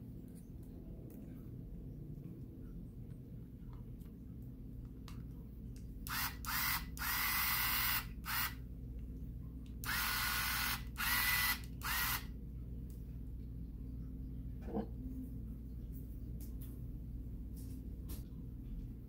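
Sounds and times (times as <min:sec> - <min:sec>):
electric screwdriver motor whine: 0:06.1 - 0:08.6, 0:09.9 - 0:12.2.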